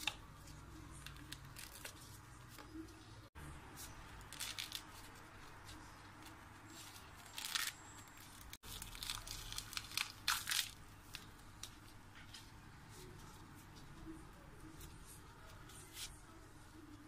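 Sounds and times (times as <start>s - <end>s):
hands tearing crisp produce: 7.0s - 11.3s.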